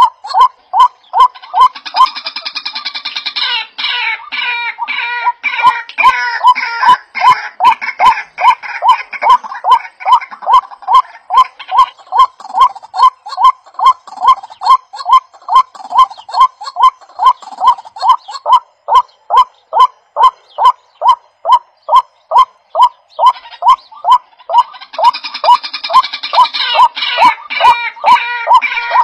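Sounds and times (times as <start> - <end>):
honk-like call: 22.3 - 29.0.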